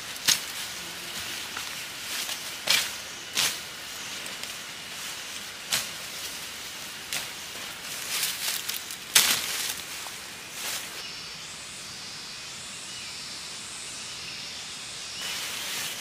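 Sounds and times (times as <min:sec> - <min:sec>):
undergrowth rustling and swishing: 0:00.0 - 0:11.1, 0:15.2 - 0:16.0
steady background hiss: 0:00.0 - 0:16.0.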